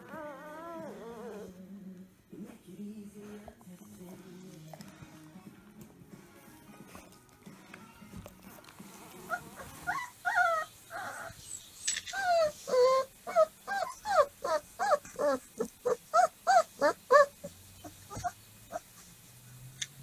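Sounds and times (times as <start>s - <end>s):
puppy whining: 0.0s - 1.7s, 8.5s - 19.2s.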